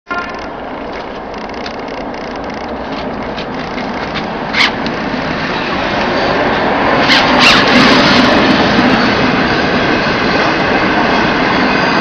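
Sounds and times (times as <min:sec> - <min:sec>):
mechanical workshop noise: 0:00.2 - 0:04.8.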